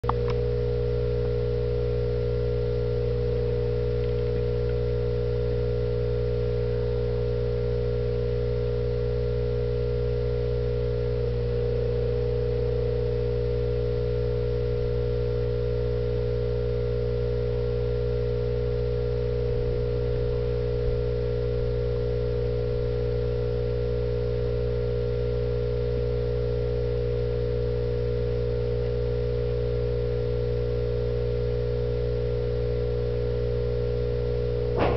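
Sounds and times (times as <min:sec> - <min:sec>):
small tick: 0:00.0 - 0:00.4, 0:03.5 - 0:05.0
steady electrical hum: 0:00.0 - 0:34.9.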